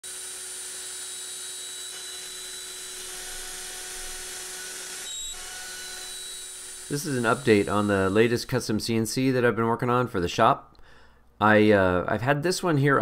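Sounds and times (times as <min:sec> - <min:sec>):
router spindle whine cutting metal: 0:00.0 - 0:08.6.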